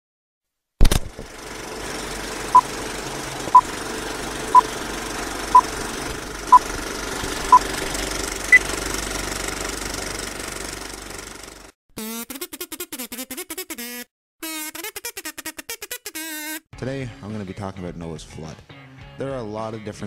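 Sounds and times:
film projector clatter: 0:00.8 - 0:11.7.

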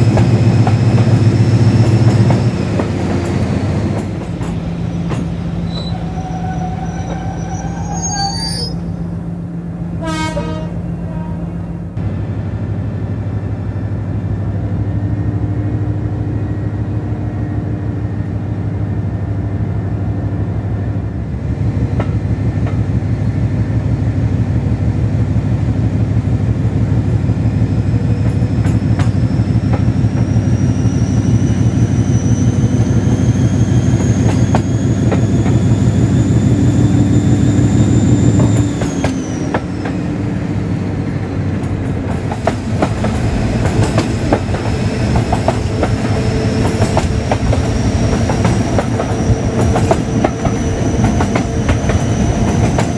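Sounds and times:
rail-joint clicks: 0:00.0 - 0:07.9, 0:21.9 - 0:22.9, 0:28.0 - 0:30.4, 0:33.9 - 0:35.7, 0:38.3 - 0:40.1, 0:41.3 - 0:52.9.

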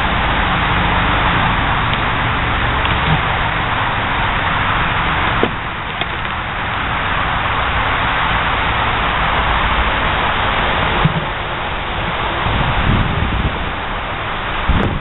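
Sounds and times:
rushing noise on microphone: 0:00.0 - 0:15.0
wooden swords striking shields: 0:05.4 - 0:06.4.

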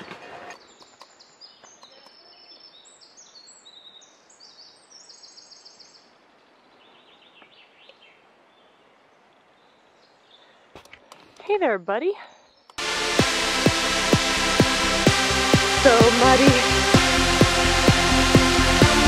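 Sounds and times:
songbirds singing: 0:00.0 - 0:12.8.

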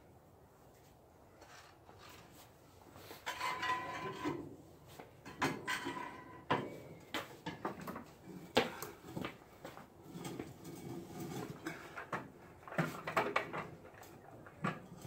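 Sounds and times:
metal scraping and knocking: 0:03.2 - 0:04.6, 0:05.2 - 0:09.2, 0:10.0 - 0:15.0.

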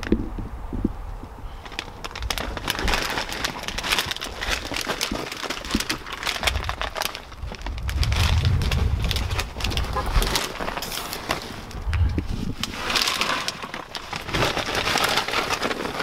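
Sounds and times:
plastic snack bag crinkling: 0:01.6 - 0:16.0.

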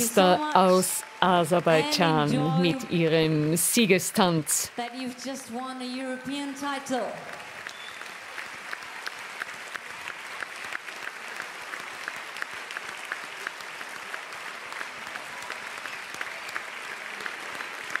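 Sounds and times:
audience applauding: 0:00.0 - 0:05.5, 0:06.2 - 0:18.0
rhythmic clapping: 0:00.0 - 0:05.5, 0:06.6 - 0:18.0.

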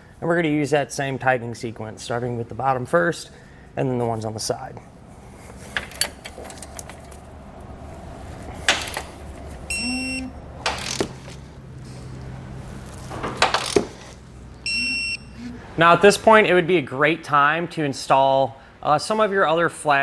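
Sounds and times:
metallic clicks and clanks on bolts: 0:08.6 - 0:09.1
short high electronic beep: 0:09.7 - 0:10.3, 0:14.6 - 0:15.6.

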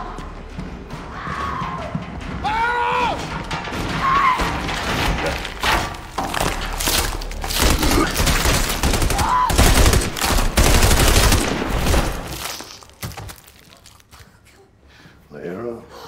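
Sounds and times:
automatic gunfire: 0:07.6 - 0:12.4.

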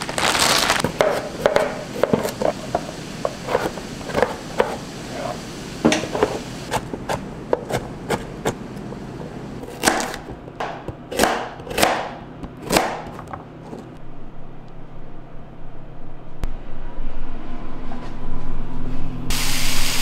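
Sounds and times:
knife chopping on cutting board: 0:00.8 - 0:02.4, 0:06.2 - 0:08.6, 0:09.6 - 0:13.4.

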